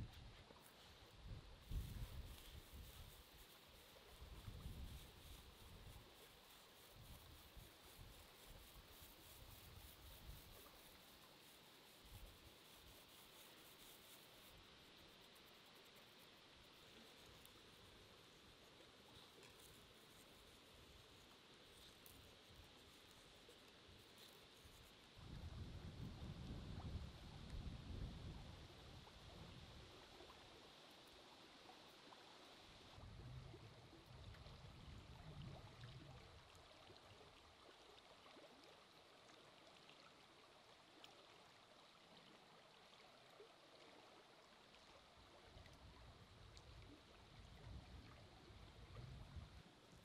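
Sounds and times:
faint outdoor hiss: 0.0s - 50.0s.

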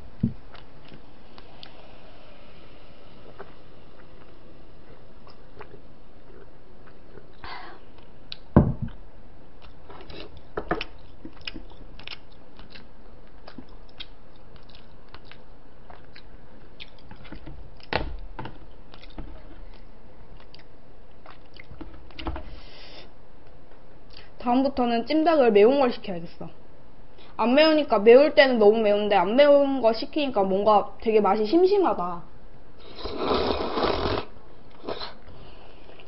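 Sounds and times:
person chewing chicken: 5.2s - 7.4s, 9.6s - 17.9s, 18.9s - 22.2s.

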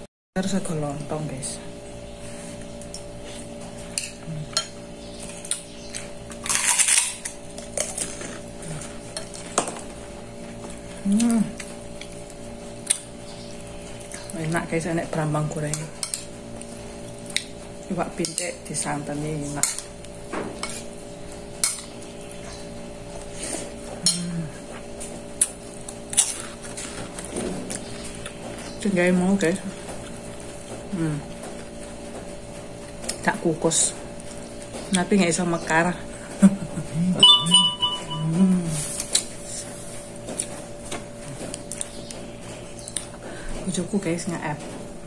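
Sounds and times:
low hum: 36.7s - 39.1s
spoon clinking on plate: 37.2s - 38.2s.

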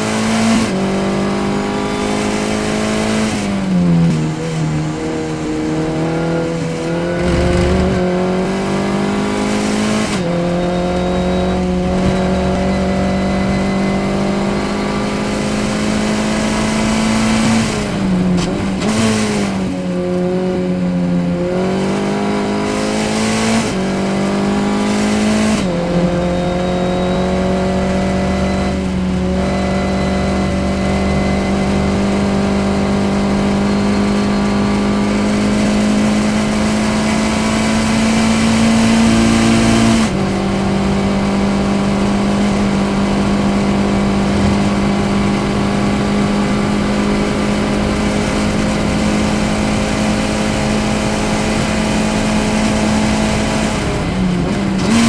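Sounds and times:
race car engine high revs: 0.0s - 55.0s
sharp gear change: 6.8s - 8.2s.

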